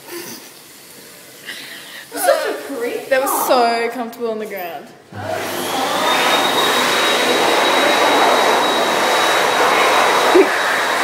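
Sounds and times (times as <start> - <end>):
electric hand dryer running: 5.1 - 11.0.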